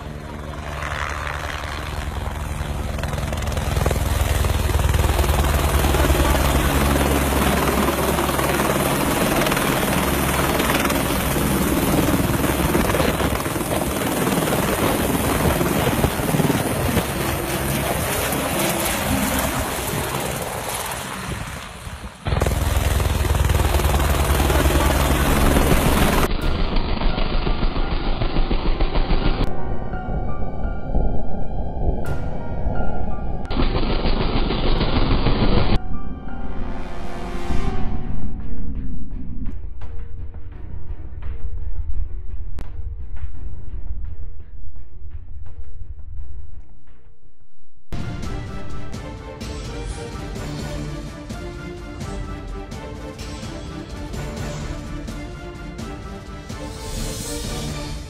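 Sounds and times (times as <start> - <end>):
helicopter rotor beating: 0.0 - 30.0, 48.0 - 58.0
helicopter turbine noise: 0.0 - 36.0, 48.0 - 58.0.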